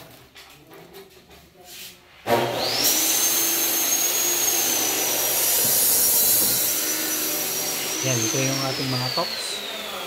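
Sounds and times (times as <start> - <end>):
electric motor spinning up: 2.5 - 10.0.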